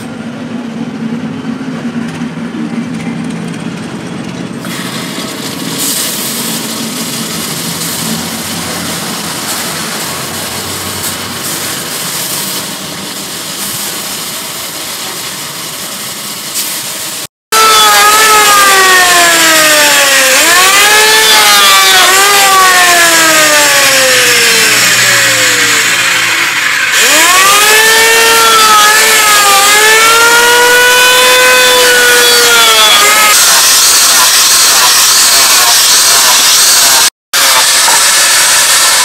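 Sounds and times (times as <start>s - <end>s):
angle grinder sanding: 4.8s - 39.0s
electric planer cutting wood: 6.6s - 12.0s, 17.6s - 39.0s.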